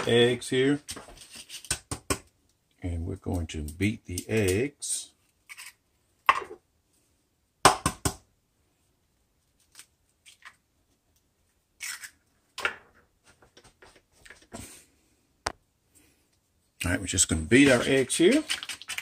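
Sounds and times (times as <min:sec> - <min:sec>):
egg shell crackling: 0:05.4 - 0:05.8, 0:09.6 - 0:10.6, 0:11.8 - 0:12.3, 0:17.7 - 0:19.0.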